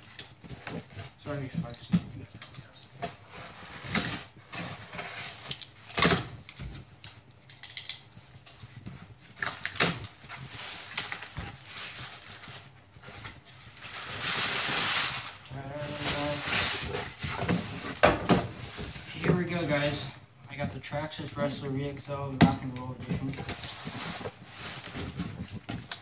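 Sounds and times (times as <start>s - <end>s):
cardboard scraping: 3.0s - 6.4s, 9.8s - 19.9s, 23.1s - 26.0s
cardboard rustling: 8.9s - 20.1s, 22.6s - 26.0s.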